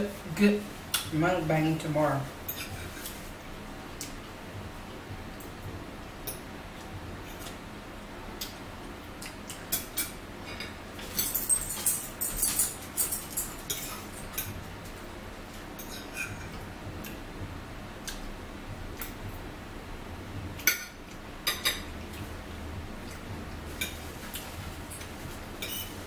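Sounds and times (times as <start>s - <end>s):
cutlery scraping on plates: 2.5s - 3.2s, 9.5s - 14.6s, 15.8s - 16.6s, 23.7s - 26.0s.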